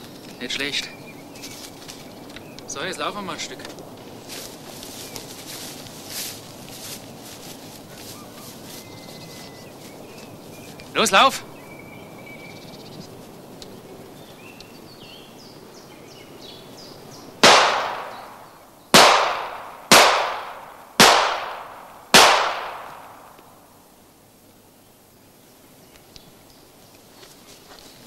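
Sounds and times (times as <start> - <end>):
faint birdsong: 0.0 - 28.0
pistol shots echoing: 17.4 - 23.4.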